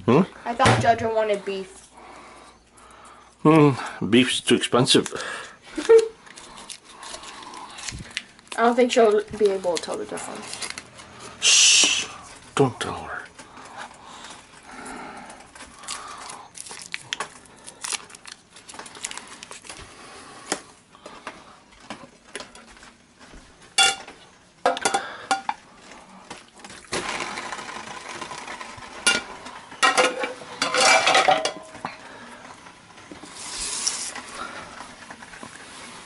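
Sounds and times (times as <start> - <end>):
dishes and utensils clattering: 23.7 - 25.6, 29.0 - 31.8.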